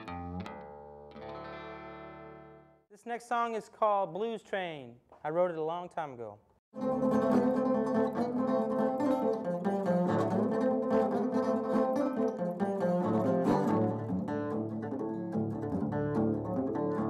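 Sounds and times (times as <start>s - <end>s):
fingerpicked acoustic guitar blues: 6.8s - 17.0s.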